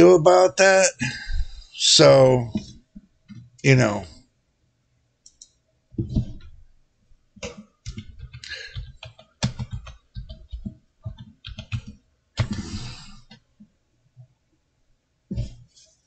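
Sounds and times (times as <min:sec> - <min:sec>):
typing on computer keyboard: 0:07.4 - 0:12.5.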